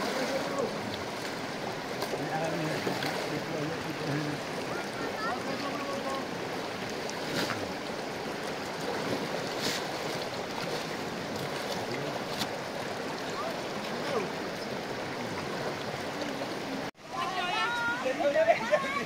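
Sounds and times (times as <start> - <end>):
water splashing as carpets dragged: 0.0 - 6.2, 6.9 - 7.8, 8.7 - 12.6
river rushing over stones: 0.0 - 19.0.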